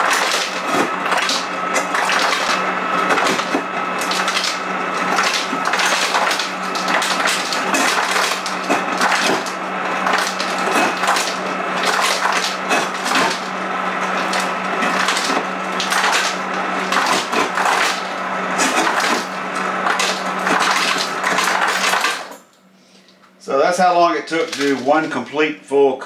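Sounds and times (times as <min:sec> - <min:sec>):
ice cubes clattering into a cup: 0:00.0 - 0:13.4, 0:24.3 - 0:25.2
motor hum: 0:00.0 - 0:26.0.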